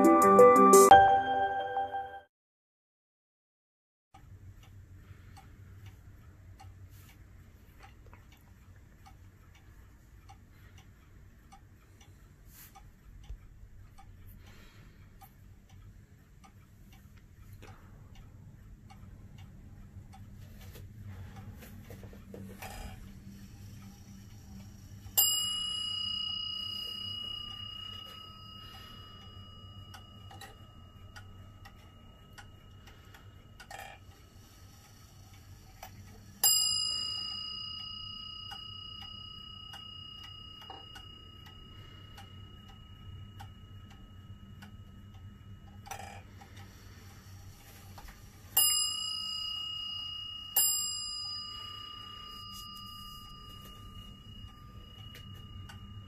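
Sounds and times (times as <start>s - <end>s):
clock bell striking: 0.0s - 2.3s, 25.1s - 33.1s, 36.4s - 46.2s, 48.5s - 56.0s
wall clock ticking: 4.1s - 56.0s.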